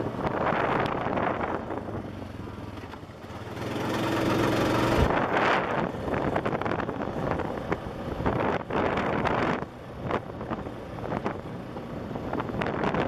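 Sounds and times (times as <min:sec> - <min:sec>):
engine running: 0:00.0 - 0:13.0
wind buffeting microphone: 0:04.3 - 0:13.0.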